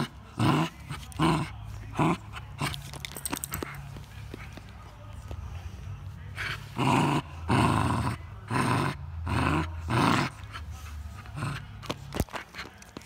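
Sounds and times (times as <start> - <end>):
dog growling: 0.0 - 3.1, 6.4 - 12.0.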